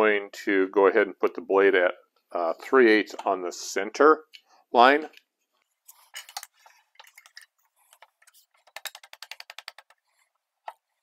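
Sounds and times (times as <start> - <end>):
tools clicking and clinking: 5.9 - 9.0.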